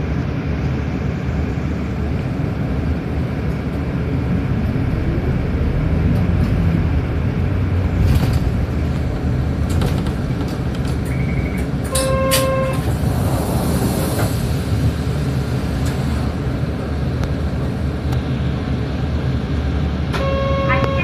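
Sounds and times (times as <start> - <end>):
bus engine and road rumble: 0.0 - 21.0
horn-like toot: 12.0 - 12.8, 20.2 - 21.0.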